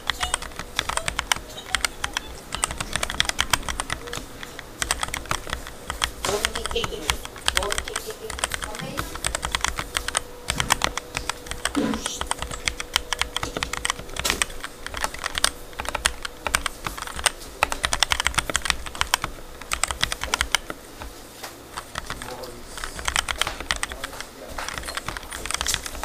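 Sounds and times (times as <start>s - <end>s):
mechanical keyboard typing: 0.0s - 26.0s.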